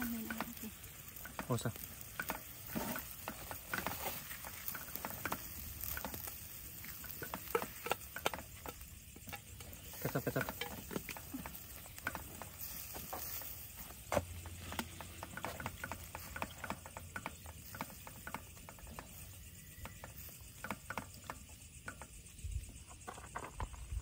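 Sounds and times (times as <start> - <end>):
food sizzling: 0.0 - 22.7.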